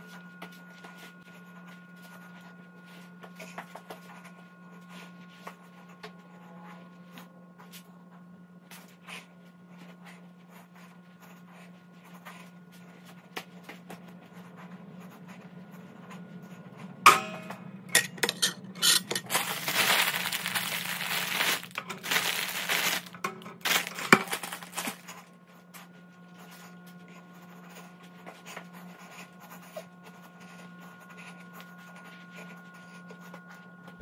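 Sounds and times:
low steady hum: 0.0s - 34.0s
crinkling and rustling: 18.2s - 25.3s.

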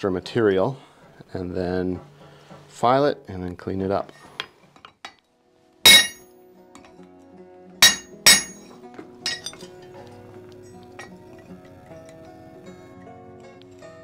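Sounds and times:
quiet background music: 0.0s - 14.0s
hammer striking chisel on metal: 5.9s - 6.2s, 7.8s - 8.6s, 9.3s - 9.7s.

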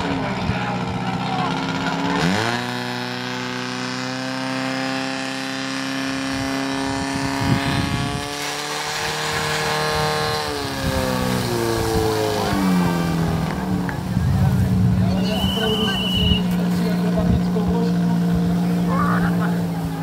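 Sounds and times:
pump engine revving: 0.0s - 20.0s.

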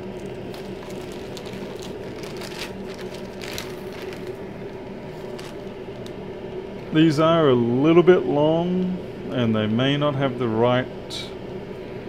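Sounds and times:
plastic bags crinkling: 0.0s - 6.2s
sharp crackles: 0.0s - 6.2s
steady low hum: 0.0s - 12.0s.

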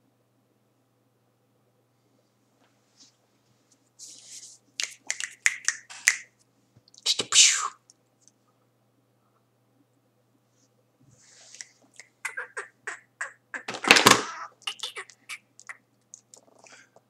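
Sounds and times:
mouth clicks and breath puffs: 4.0s - 6.3s, 11.3s - 17.0s.

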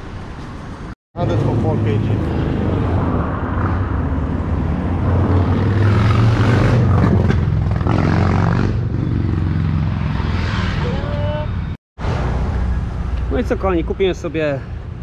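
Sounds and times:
traffic passing: 0.0s - 15.0s.

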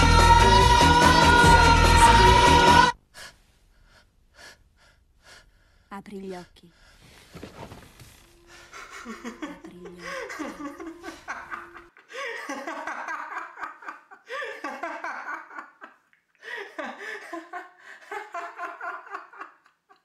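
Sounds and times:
man laughing hard: 8.7s - 20.0s.

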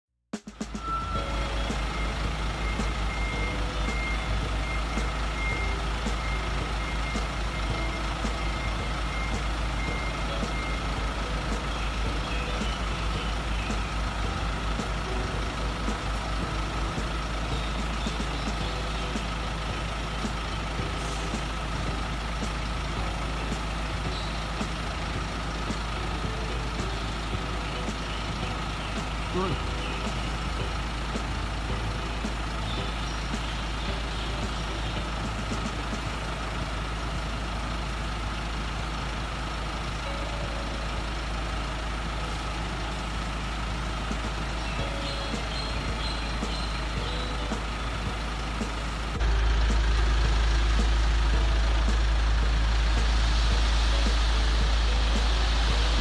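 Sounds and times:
diesel truck engine running: 0.4s - 56.0s
electronic warning beep: 0.8s - 10.8s.

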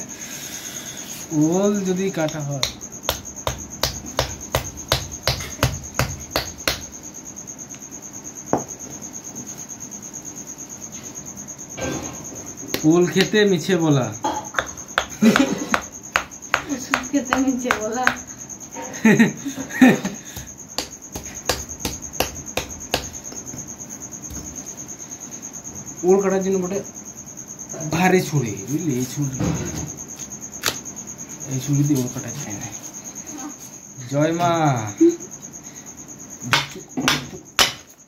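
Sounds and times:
crickets chirping: 0.0s - 38.0s
knife chopping into yam: 2.2s - 6.9s, 14.5s - 18.3s, 20.4s - 23.6s, 30.2s - 30.8s.

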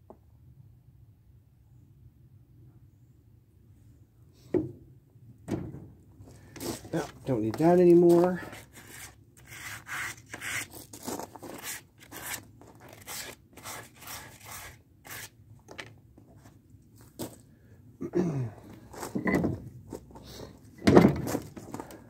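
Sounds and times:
vise screw creaking and scraping: 8.2s - 10.8s.

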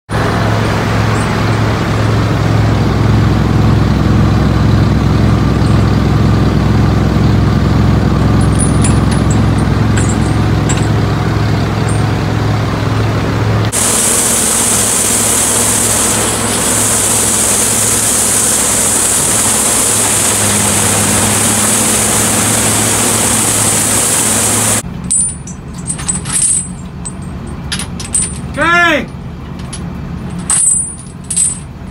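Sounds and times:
engine hum: 0.1s - 31.9s
loose chains clinking: 8.2s - 11.2s, 11.8s - 12.2s, 24.9s - 31.9s
chains beating on logs: 8.4s - 11.0s, 25.0s - 31.7s.

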